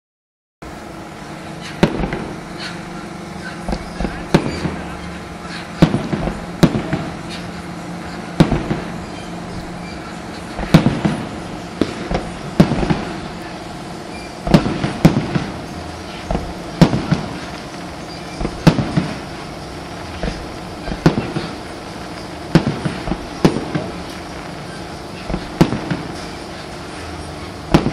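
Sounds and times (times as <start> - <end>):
fireworks bursting with loud bangs: 1.0 - 27.9.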